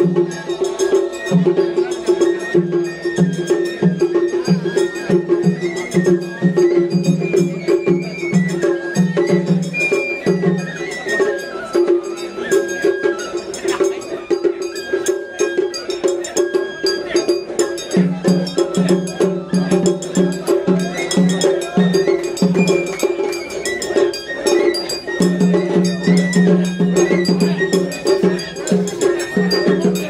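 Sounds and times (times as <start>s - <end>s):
rapid metallic strikes ringing: 9.6s - 30.0s.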